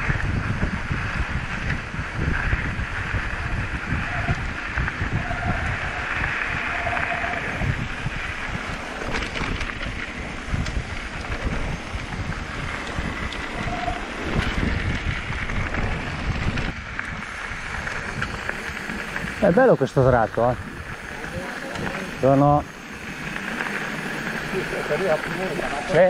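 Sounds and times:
bike tyres on gravel: 0.0 - 26.0
wind buffeting microphone: 0.0 - 26.0
small clicks and rattles: 8.6 - 17.2.

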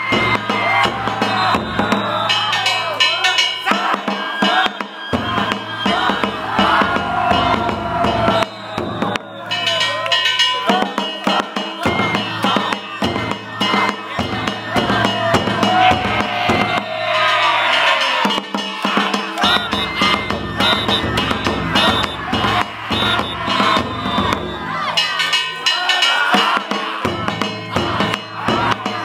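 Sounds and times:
clanging hand gongs: 0.0 - 3.9, 9.5 - 15.8, 17.2 - 29.0
bamboo flute wavering melody: 0.0 - 26.3
taiko drum struck rapidly: 0.0 - 29.0.

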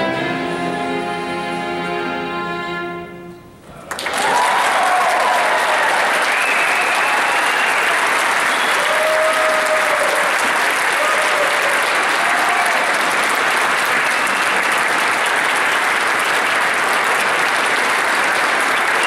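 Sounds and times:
short calls from audience: 3.7 - 14.8
large audience applauding: 3.8 - 19.0.

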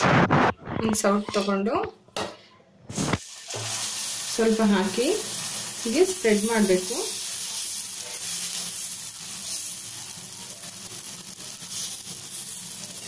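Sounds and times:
batter sizzling on hot griddle: 2.9 - 13.0.

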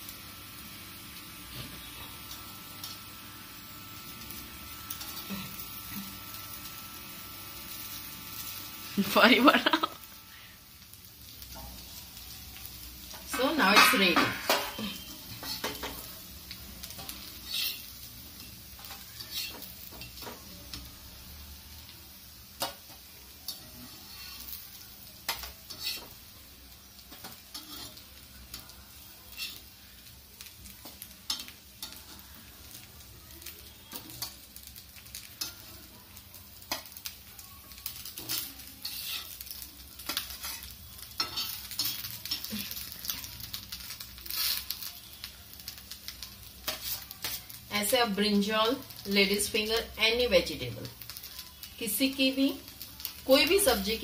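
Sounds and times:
faint oil sizzle: 0.0 - 54.0
metal spatula scraping griddle: 13.0 - 16.0, 16.8 - 20.8, 23.5 - 24.6, 25.3 - 26.2, 27.1 - 29.8, 37.7 - 44.9, 46.6 - 47.6.

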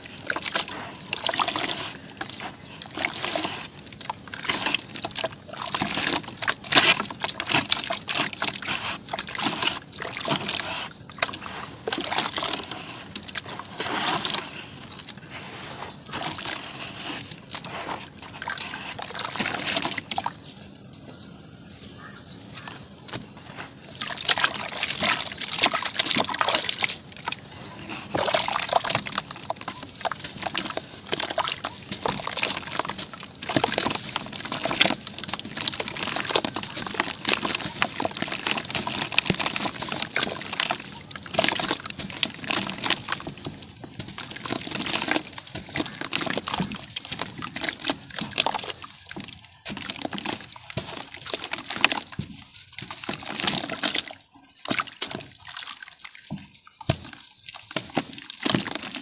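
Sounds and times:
wet squelching and sloshing: 0.0 - 59.0.

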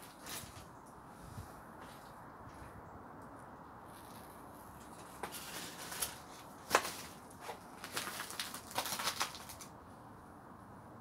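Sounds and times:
footsteps crunching on rubble: 4.0 - 9.6.

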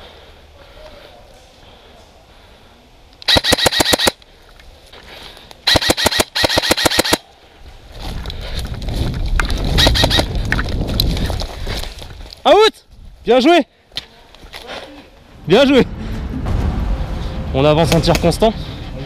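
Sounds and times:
airsoft rifle rapid clicking shots: 3.2 - 4.2, 5.7 - 7.2, 9.8 - 10.3
wind and movement rumble on camera: 7.2 - 13.3.

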